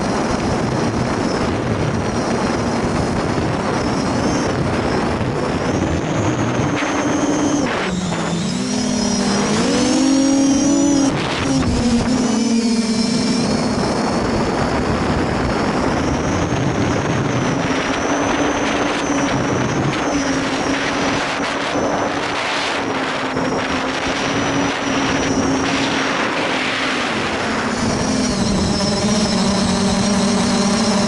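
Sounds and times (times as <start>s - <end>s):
propellers rushing air: 0.0s - 31.0s
quadcopter motors humming: 0.0s - 31.0s.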